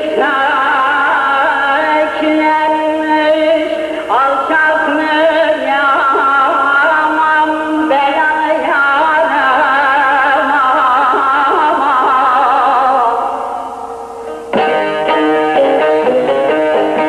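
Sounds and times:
plucked strings: 14.2s - 17.0s.

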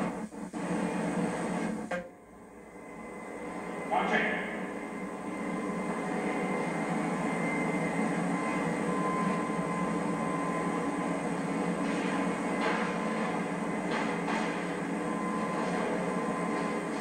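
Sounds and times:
faint high whine: 0.0s - 17.0s
steady rumbling: 0.0s - 17.0s.

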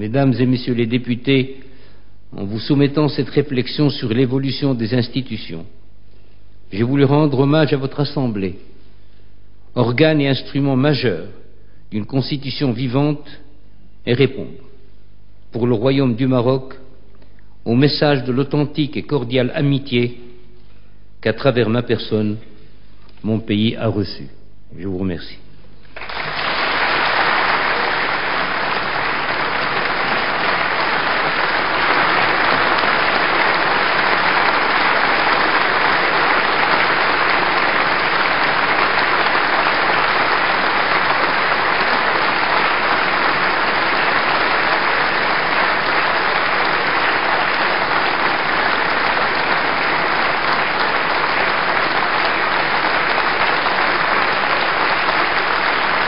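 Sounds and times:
large audience applauding: 26.0s - 56.0s.

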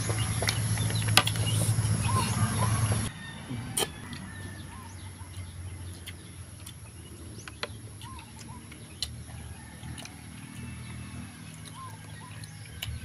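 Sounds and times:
mouth clicks and smacks eating: 5.2s - 10.7s.

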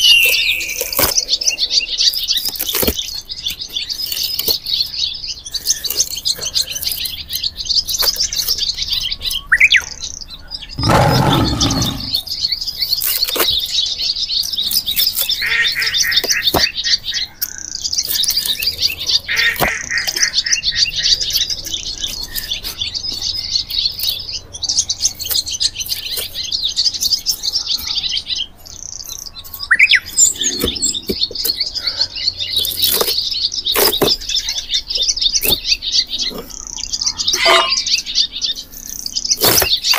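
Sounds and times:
rising whistled bird calls: 0.0s - 1.5s
small birds chirping: 0.0s - 39.9s
low rasp: 10.8s - 12.2s
bark tearing off log: 39.4s - 39.9s.

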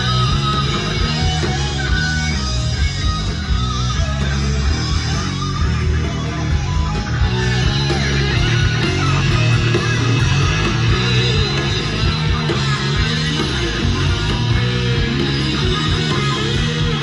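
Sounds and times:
heavy rock music with guitars: 0.0s - 17.0s.

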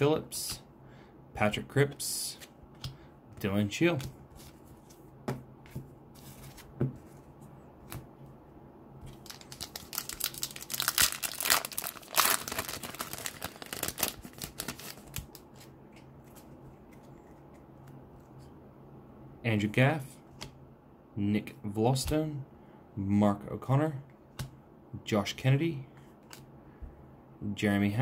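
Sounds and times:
wrapper and card rustles and clicks: 9.0s - 17.6s
foil wrapper crackling: 9.1s - 15.3s.

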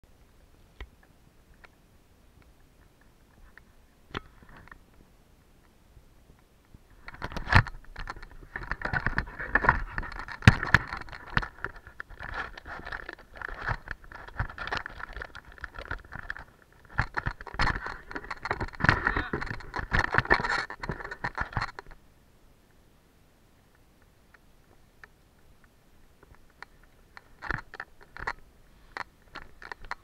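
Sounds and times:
ski knocks and rattles: 7.0s - 21.9s.

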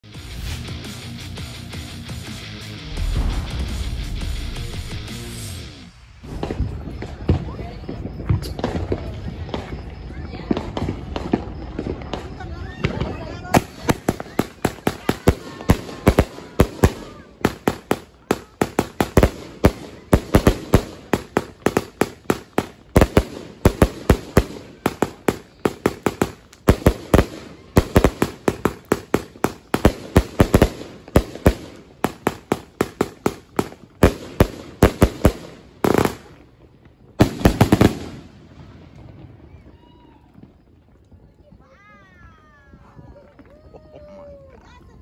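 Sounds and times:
firework cake bangs: 6.2s - 36.4s.

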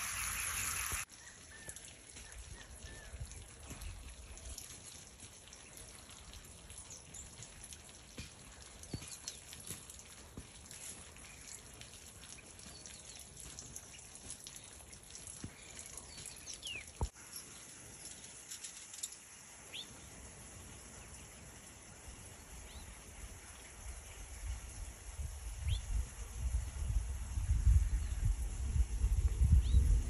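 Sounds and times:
outdoor hiss: 0.0s - 1.3s, 14.9s - 29.7s
songbirds chirping: 0.0s - 20.2s.

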